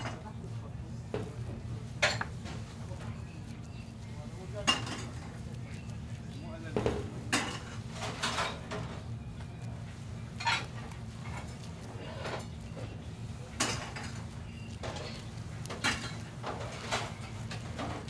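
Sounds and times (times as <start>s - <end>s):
steady low hum: 0.0s - 18.0s
dishes and utensils clinking: 2.0s - 2.4s, 4.6s - 5.2s, 6.8s - 9.0s, 10.4s - 12.9s, 13.5s - 18.0s.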